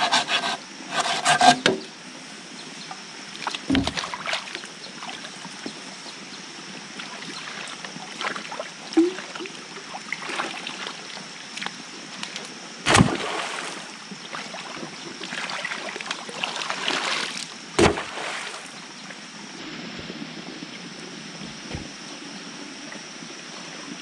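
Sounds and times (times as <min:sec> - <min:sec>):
water sloshing and splashing: 0:03.3 - 0:05.8, 0:06.9 - 0:18.8
loud thumps: 0:12.9 - 0:13.2, 0:17.8 - 0:18.1.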